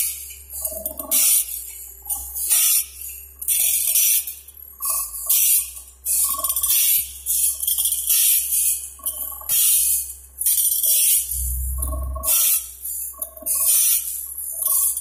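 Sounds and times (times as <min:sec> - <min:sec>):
motor hum: 0:11.3 - 0:12.4.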